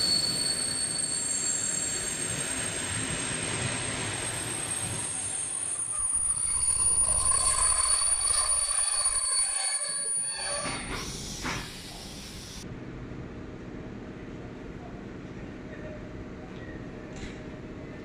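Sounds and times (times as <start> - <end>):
train brakes squealing: 0.0 - 12.6
train coaches rumbling: 2.0 - 12.6.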